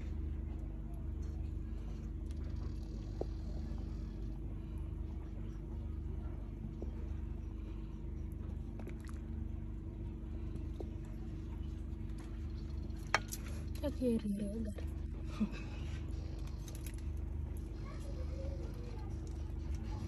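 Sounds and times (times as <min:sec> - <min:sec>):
low rumble with faint hum: 0:00.0 - 0:20.0.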